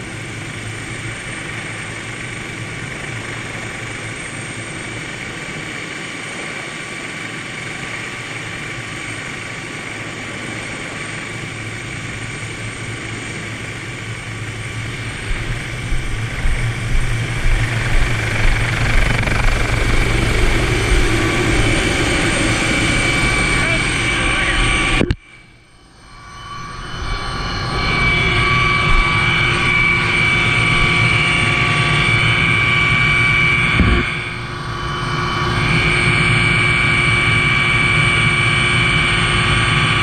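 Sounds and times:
helicopter running: 0.0s - 40.0s
high whine: 10.6s - 40.0s.

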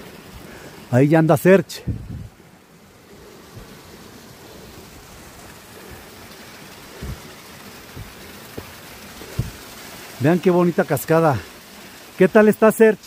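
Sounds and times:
waterfall splashing: 0.0s - 13.0s
soft thumps: 7.0s - 7.3s, 7.9s - 9.7s.

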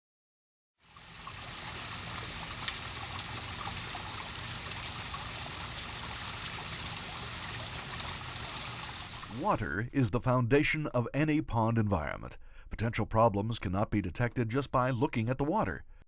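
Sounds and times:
stream running over rocks: 0.8s - 9.5s.

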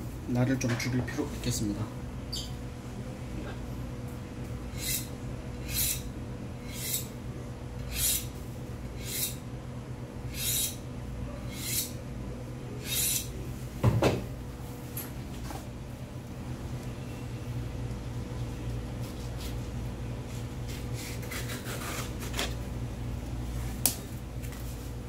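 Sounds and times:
steady machine hum: 0.0s - 25.0s
knife blade scraping: 4.7s - 7.1s, 7.9s - 8.3s, 9.0s - 9.4s, 10.3s - 10.8s, 11.5s - 12.0s, 12.8s - 13.3s
knock: 13.8s - 14.2s.

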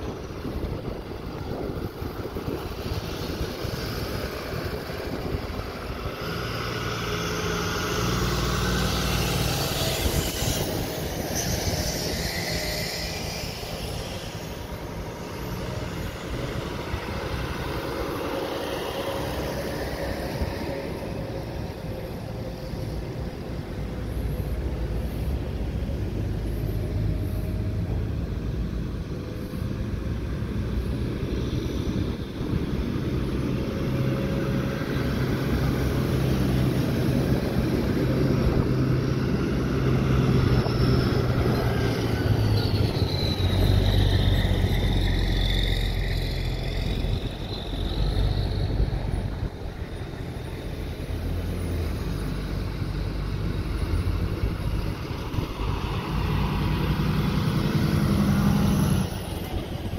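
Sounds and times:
trucks driving past: 0.0s - 59.9s.

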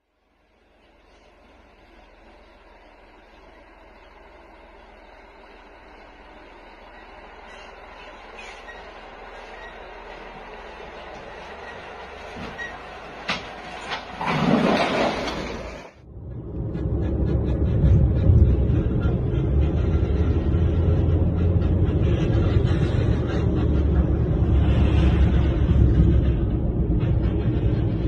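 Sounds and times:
vehicle rumbling: 0.0s - 28.0s
rushing noise: 1.1s - 28.0s
metal dragging on road: 6.6s - 28.0s.

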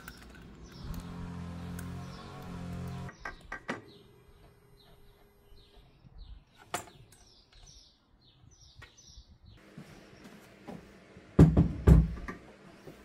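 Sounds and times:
bird chirping: 0.0s - 9.6s.

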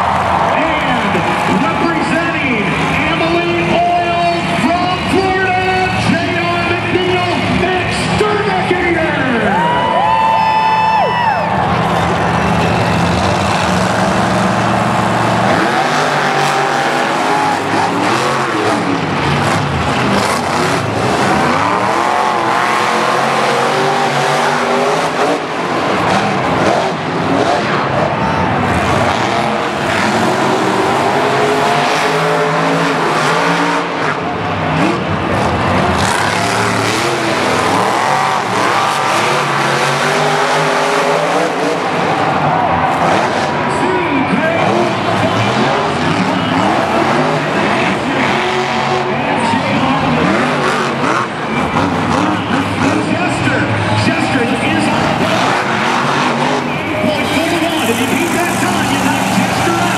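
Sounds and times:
monster truck engines revving: 0.0s - 59.9s.

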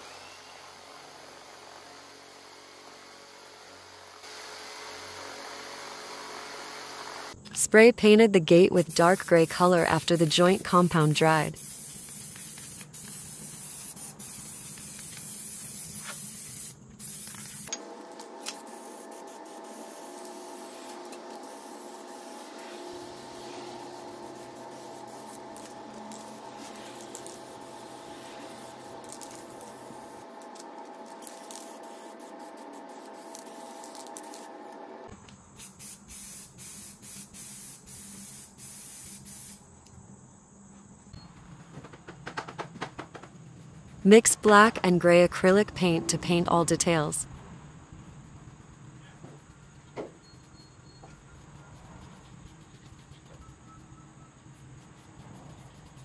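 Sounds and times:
aerosol spray can hissing: 8.7s - 34.6s, 35.6s - 39.7s.

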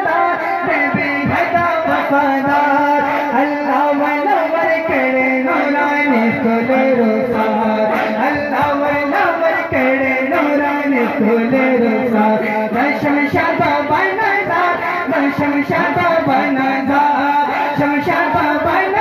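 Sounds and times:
men singing devotional song: 0.0s - 19.0s
steady drum beat: 4.8s - 19.0s.

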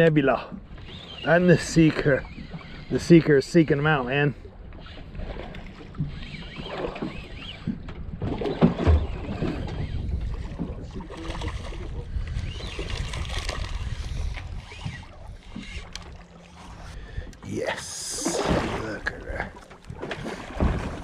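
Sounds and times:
water slapping boat hull: 0.0s - 21.0s
fishing reel cranking: 0.8s - 7.9s, 8.5s - 10.4s, 12.1s - 17.0s.

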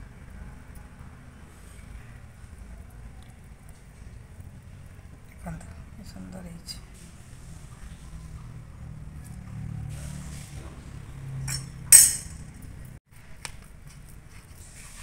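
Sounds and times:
steel dishes clinking: 11.5s - 12.5s.

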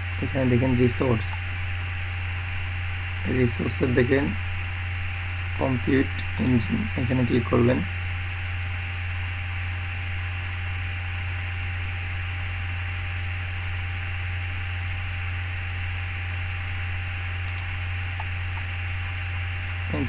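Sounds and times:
electrical hum with hiss: 0.0s - 20.0s
mouse clicks: 17.4s - 18.7s.

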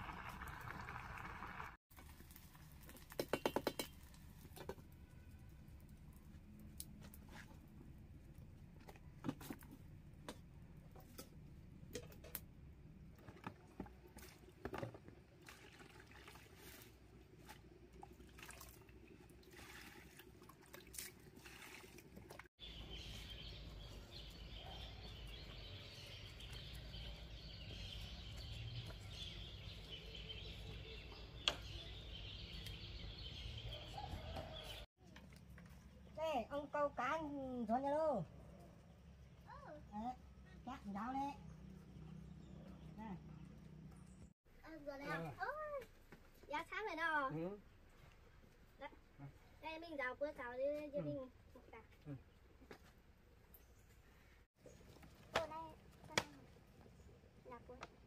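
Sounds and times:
water pouring and splashing: 0.0s - 4.8s, 13.1s - 22.5s.

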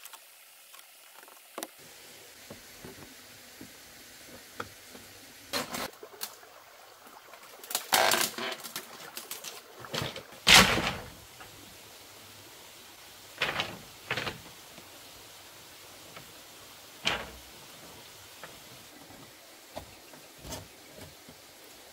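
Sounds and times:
rustles and knocks of person moving: 17.0s - 21.6s.

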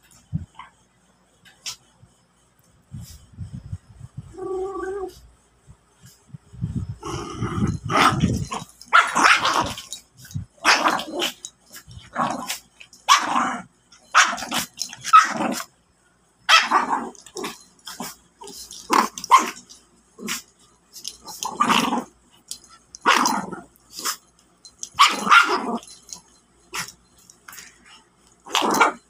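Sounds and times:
dogs growling and barking: 7.0s - 15.7s, 16.5s - 29.0s.

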